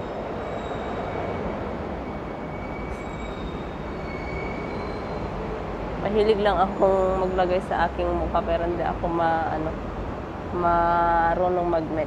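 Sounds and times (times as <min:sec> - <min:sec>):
city hiss and low rumble: 0:05.2 - 0:12.0.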